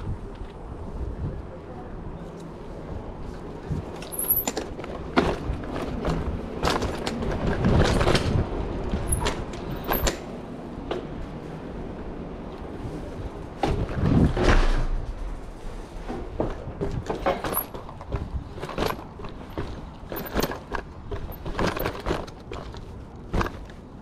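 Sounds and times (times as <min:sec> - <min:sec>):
bicycle rattling over paving: 0:02.9 - 0:10.9, 0:13.5 - 0:24.0.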